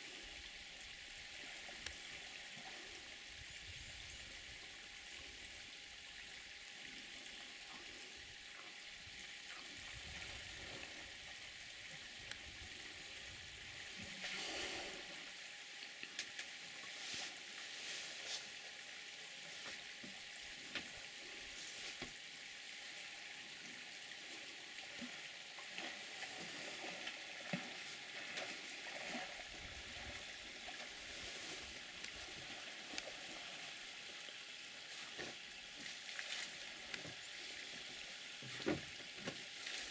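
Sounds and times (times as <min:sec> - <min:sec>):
elephants drinking water: 0:13.3 - 0:15.2, 0:24.3 - 0:33.8
steady hiss: 0:27.8 - 0:39.9.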